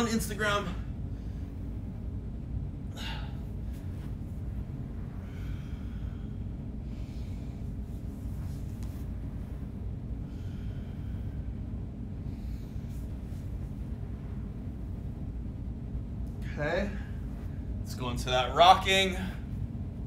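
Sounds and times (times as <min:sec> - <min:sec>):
low rumble: 0:00.0 - 0:20.0
man breathing heavily: 0:02.8 - 0:14.0.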